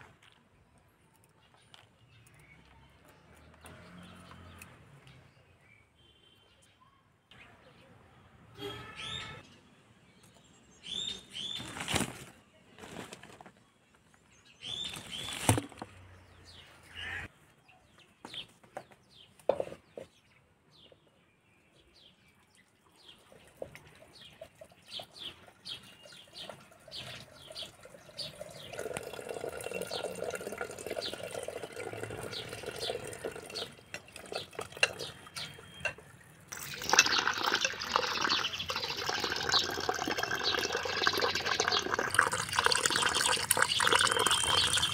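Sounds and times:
tap water running into pot: 28.4 - 35.1, 36.5 - 44.9.

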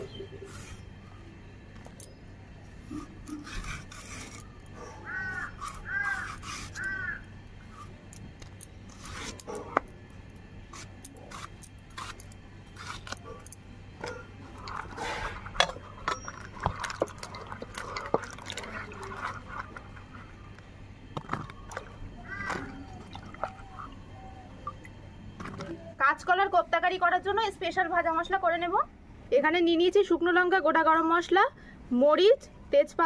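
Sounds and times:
blade scraping and cutting plantains: 2.9 - 4.5, 5.4 - 7.0, 10.7 - 13.4
crow cawing: 4.9 - 7.3, 22.2 - 23.0.

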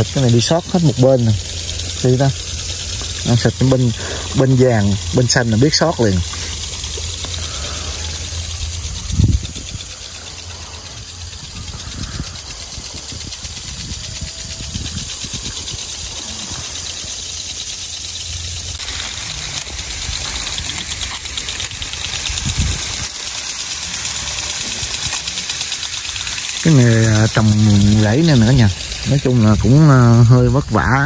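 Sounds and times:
low rumble: 0.0 - 23.2
sprinklers hissing: 0.0 - 31.0.

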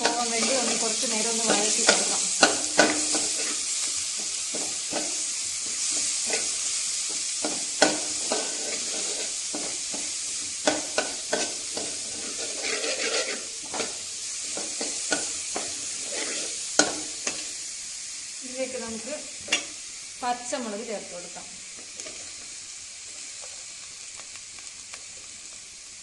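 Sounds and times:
metal spoon scraping a pan: 0.0 - 17.6
food sizzling in oil: 0.0 - 26.0.

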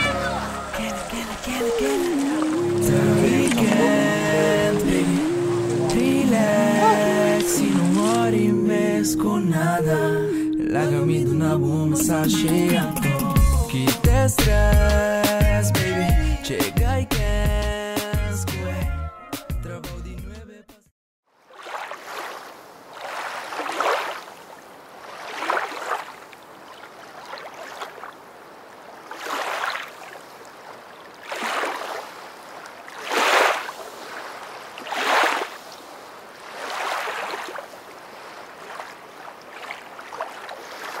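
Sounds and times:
ocean waves washing in: 0.0 - 10.5, 21.4 - 41.0.

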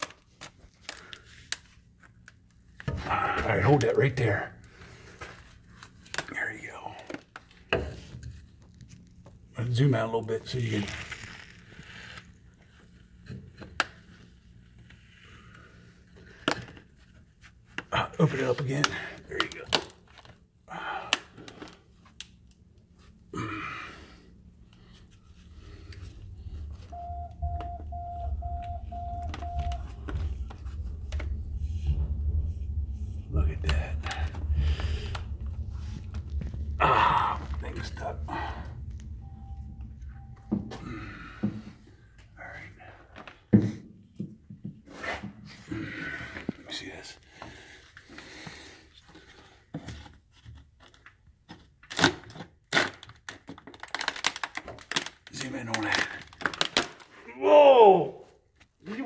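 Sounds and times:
short electronic beeps: 26.9 - 30.0.

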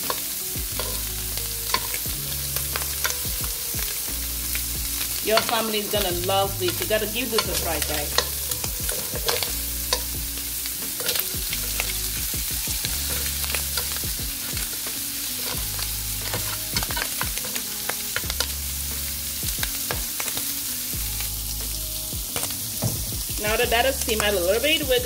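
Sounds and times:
metal tongs clicking on pan: 0.0 - 1.1, 1.7 - 3.2, 5.2 - 6.0, 6.6 - 10.2, 11.0 - 12.0, 13.0 - 18.6
shrimp sizzling in a pan: 0.0 - 25.0.

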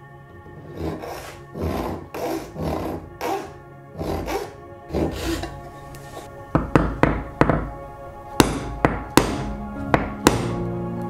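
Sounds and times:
chisel struck with mallet: 8.4 - 10.6.

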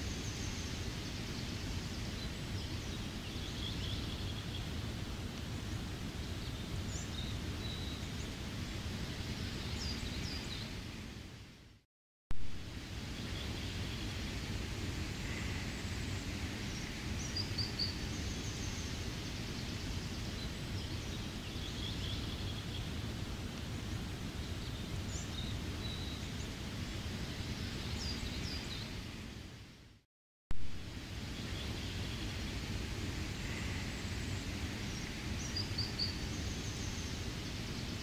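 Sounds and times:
steady rain falling: 12.4 - 29.7, 30.6 - 38.0.

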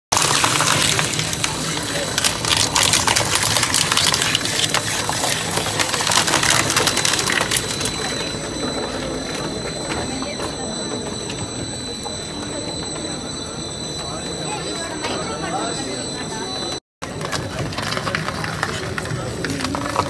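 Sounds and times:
coconut shells cracking and crunching: 0.1 - 8.0
shredder machine running: 0.1 - 20.0.

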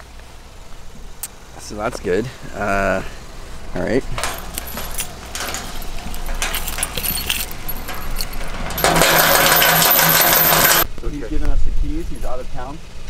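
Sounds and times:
keys jangling in a lock: 4.2 - 10.8.

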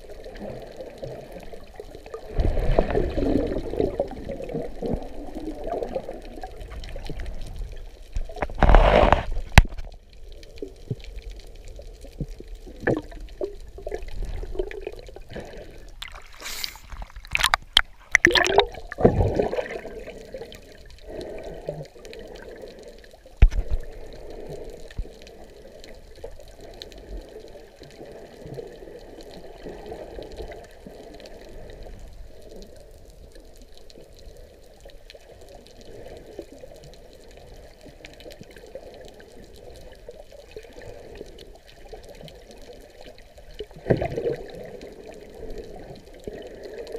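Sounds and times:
muffled underwater water sloshing: 0.0 - 46.9
splashing: 12.7 - 20.6.

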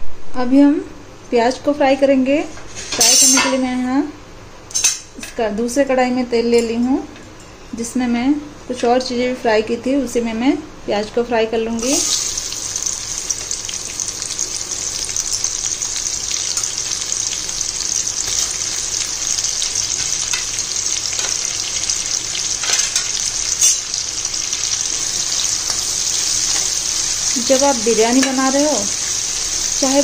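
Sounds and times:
onions sizzling in hot oil: 11.8 - 30.0.

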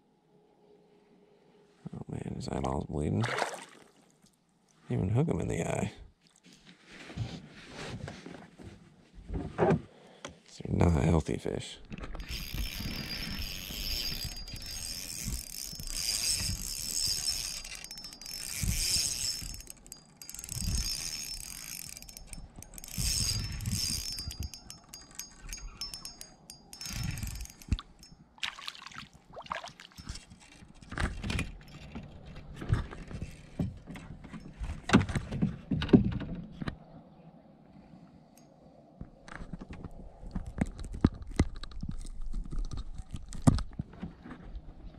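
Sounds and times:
gear knocks and clicks: 11.9 - 28.2, 30.0 - 36.6, 39.3 - 44.1
fishing reel whirring clicks: 12.2 - 28.2.

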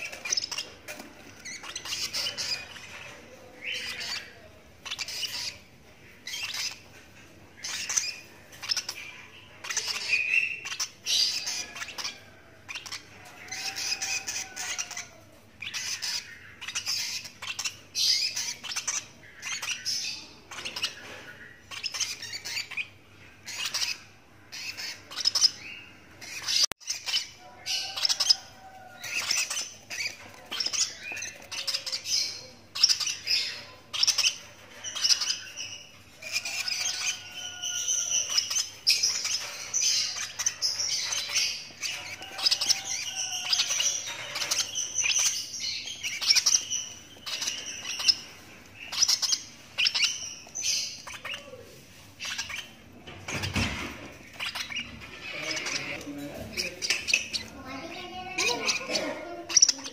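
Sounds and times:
bird chick begging calls: 26.3 - 51.6.

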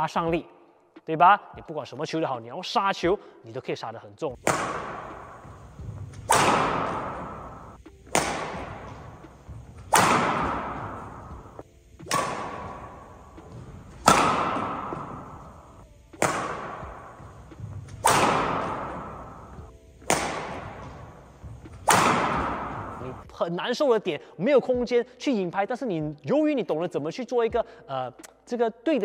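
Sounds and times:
racket hitting shuttlecock: 4.4 - 23.2.

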